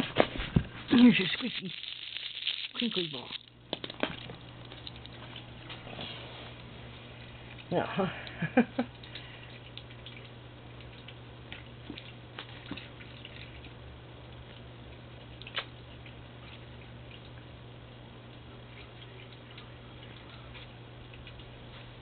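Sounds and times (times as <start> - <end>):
steady low hum: 0.0 - 22.0
kitten playing with clicks and taps: 1.0 - 5.1.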